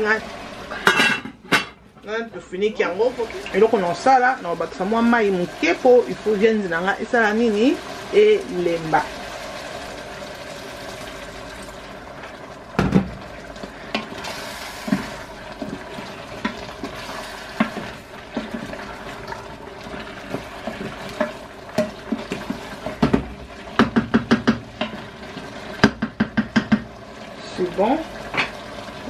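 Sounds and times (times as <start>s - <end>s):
hot water pouring into a pot: 2.8s - 29.0s
wooden spoon stirring in a pot: 13.2s - 29.0s.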